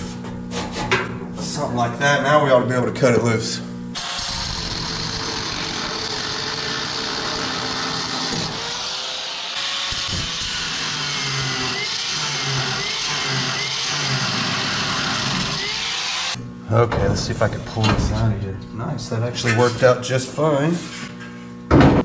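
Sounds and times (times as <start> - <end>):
power tool cutting sheet metal: 4.0 - 16.4.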